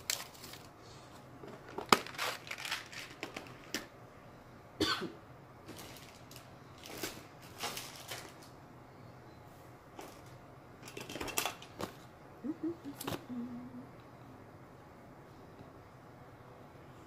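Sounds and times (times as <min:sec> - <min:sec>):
plastic rustling and crinkling: 0:00.0 - 0:03.9, 0:05.6 - 0:08.6.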